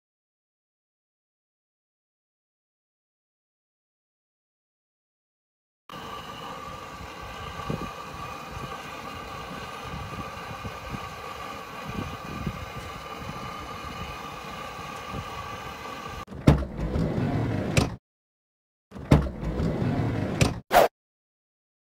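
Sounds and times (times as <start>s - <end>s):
rotisserie motor humming: 5.9s - 16.2s.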